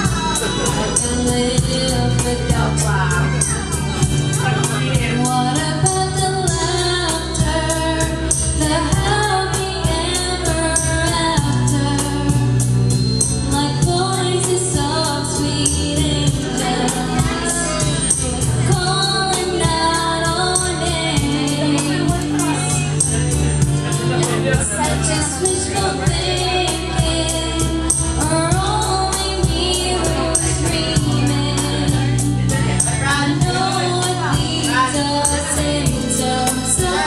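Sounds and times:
backing track with steady beat: 0.0s - 37.0s
woman singing into microphone: 0.0s - 37.0s.

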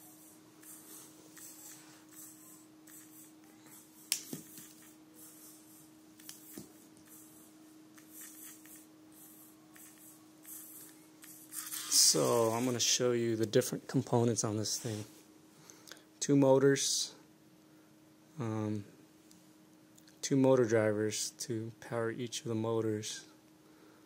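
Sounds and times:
pencil tapping robot: 0.2s - 3.3s, 4.0s - 5.3s, 6.2s - 7.2s, 8.0s - 11.9s.

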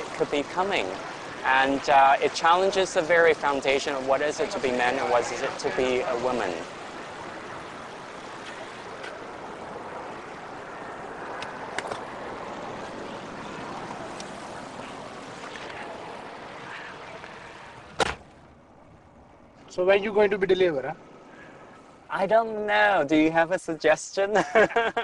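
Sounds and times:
city street traffic: 0.0s - 25.0s
car door slamming: 18.0s - 18.3s.

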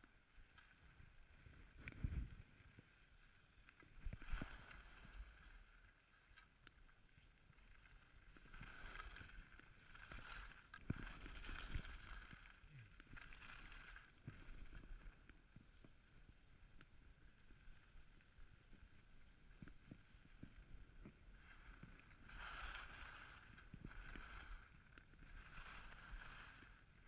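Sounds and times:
skis scraping over snow: 7.0s - 27.0s.

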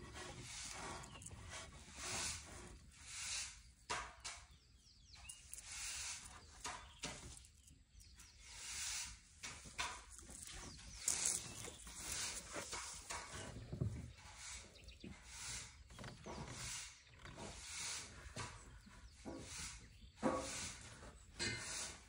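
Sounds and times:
elephant snuffling through trunk: 0.0s - 3.8s.

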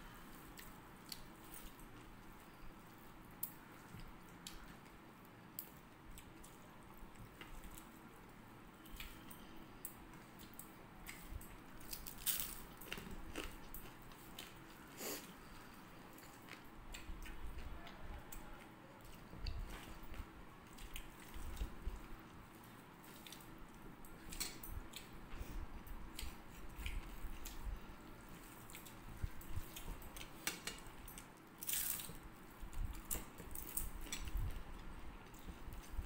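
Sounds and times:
chewing and mouth smacks: 25.8s - 27.7s.

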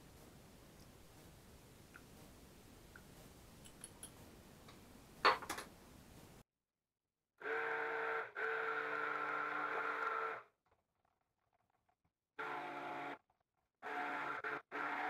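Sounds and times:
stick blender motor whine: 7.4s - 10.6s, 12.4s - 15.0s.

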